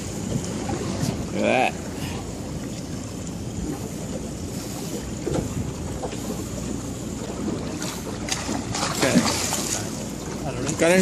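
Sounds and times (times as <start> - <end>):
water washing against boat: 0.0 - 11.0.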